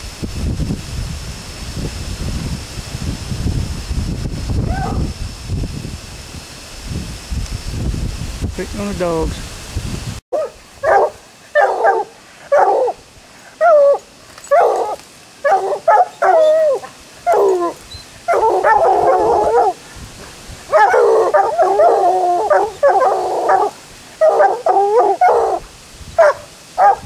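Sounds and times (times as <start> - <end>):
hounds barking: 10.4 - 19.8, 20.7 - 25.6, 26.2 - 27.0.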